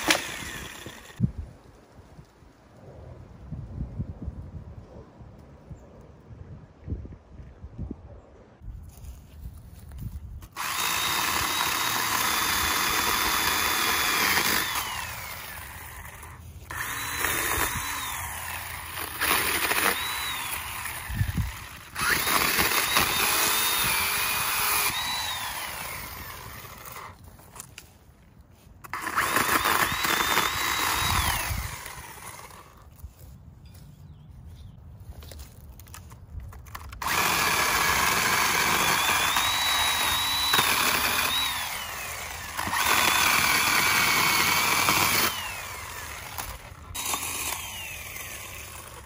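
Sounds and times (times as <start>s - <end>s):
electric pole saw cutting branches: 0.0s - 1.2s, 10.4s - 27.9s, 28.8s - 33.1s, 36.6s - 49.0s.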